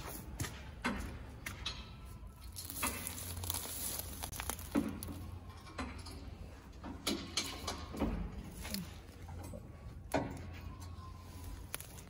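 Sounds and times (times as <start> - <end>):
rustling: 2.4 - 5.4, 11.1 - 12.0.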